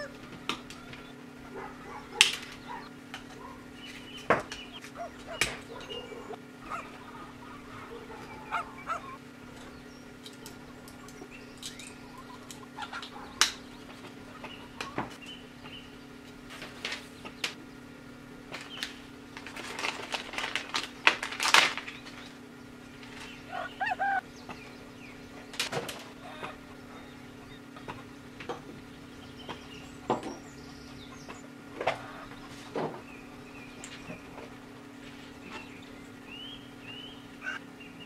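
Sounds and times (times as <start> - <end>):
steady low hum: 0.0 - 38.0
rubbing and rustling: 19.4 - 22.3.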